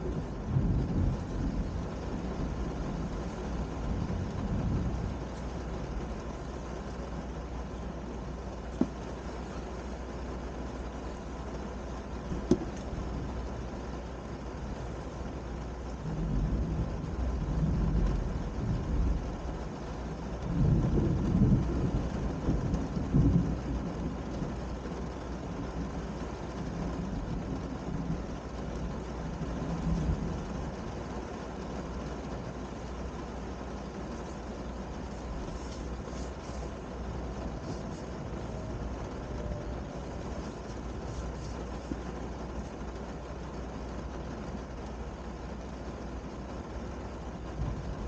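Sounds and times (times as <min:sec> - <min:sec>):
thunder rolling: 0:00.0 - 0:09.3, 0:15.8 - 0:19.8, 0:20.4 - 0:30.9, 0:32.2 - 0:45.9, 0:47.2 - 0:48.0
steady rain: 0:00.0 - 0:48.0.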